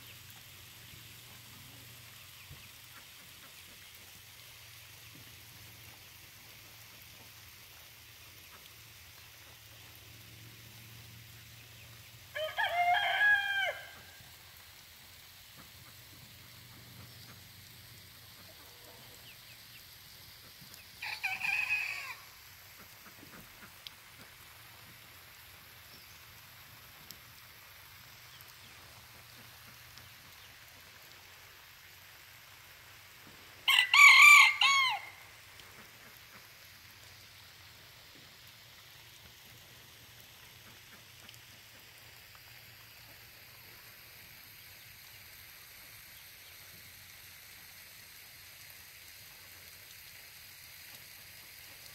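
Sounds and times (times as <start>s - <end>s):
rooster crowing: 12.3s - 14.2s, 21.0s - 22.3s, 33.6s - 35.3s.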